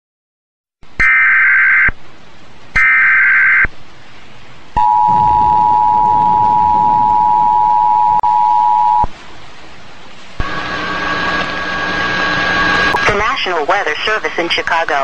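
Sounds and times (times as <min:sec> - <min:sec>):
two-tone attention signal: 0:04.8 - 0:09.1.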